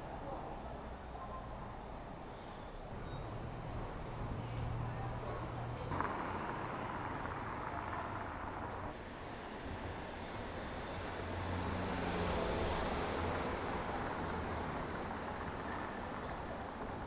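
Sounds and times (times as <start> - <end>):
city street traffic: 0.0 - 17.0
vehicle passing: 4.2 - 9.0.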